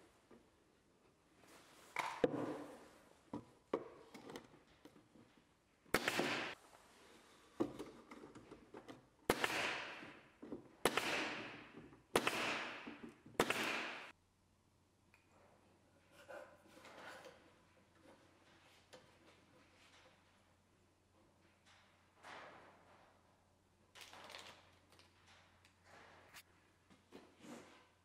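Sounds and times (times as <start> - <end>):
nail gun shots: 5.9 - 6.6, 9.3 - 10.2, 10.8 - 14.1.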